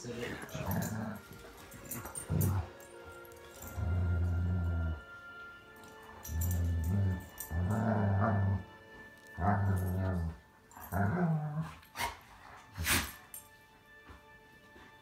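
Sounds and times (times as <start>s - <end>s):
background music: 0.0s - 15.0s
dog growling: 0.3s - 2.9s, 3.6s - 5.2s, 6.2s - 8.7s, 9.3s - 11.8s.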